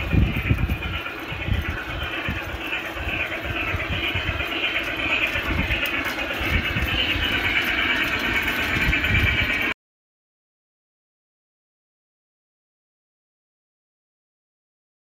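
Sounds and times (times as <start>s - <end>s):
model steam locomotive running: 0.0s - 9.8s.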